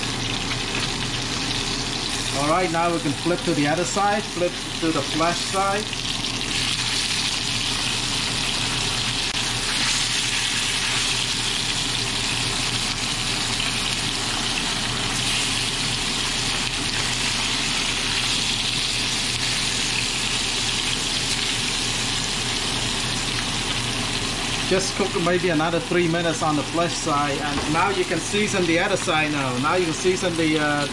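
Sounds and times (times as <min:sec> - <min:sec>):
fish sizzling in a frying pan: 0:00.0 - 0:25.5.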